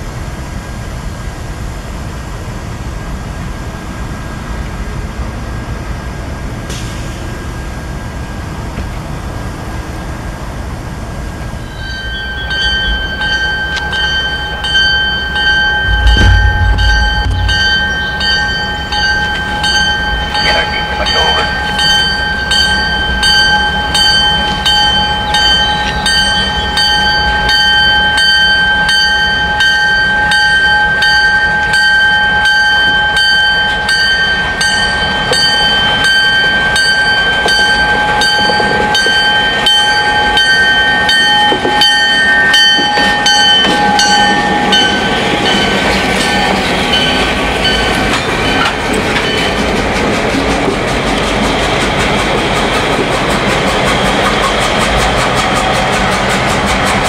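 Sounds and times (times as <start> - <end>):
diesel locomotive engines throbbing: 0.0 - 57.0
high-pitched squeal: 15.6 - 19.5.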